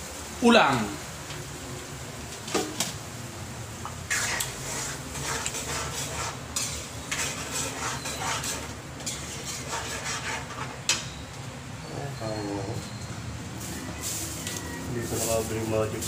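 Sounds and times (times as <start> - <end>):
spoon scraping cooking pan: 3.8 - 11.2.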